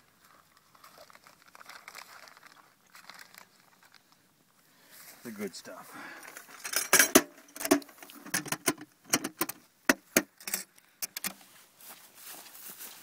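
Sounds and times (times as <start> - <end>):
plastic bag crinkling: 0.1 - 4.3.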